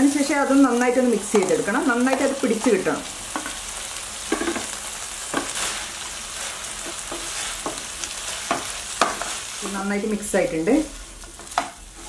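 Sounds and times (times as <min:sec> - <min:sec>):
chicken sizzling in hot oil: 0:00.0 - 0:12.0
spatula scraping pan: 0:03.3 - 0:12.0.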